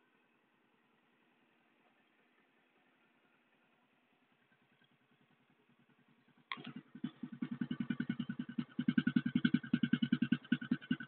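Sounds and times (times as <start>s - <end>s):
motorcycle engine idling: 0.8s - 11.0s.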